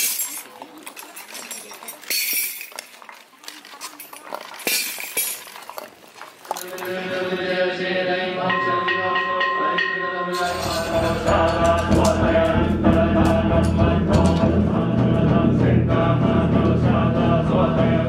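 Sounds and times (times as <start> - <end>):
sharp clinks and clacks: 0.0 - 3.1, 3.7 - 6.0, 10.4 - 12.6
monks chanting: 6.6 - 18.0
bowl bell ringing: 8.5 - 12.0.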